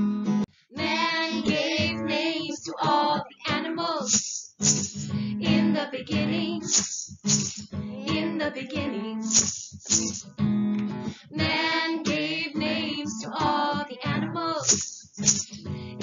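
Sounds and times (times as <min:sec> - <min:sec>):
strummed acoustic guitar: 0:00.0 - 0:16.0
woman and child singing: 0:00.8 - 0:04.2, 0:05.4 - 0:06.8, 0:07.9 - 0:09.4, 0:11.4 - 0:14.8.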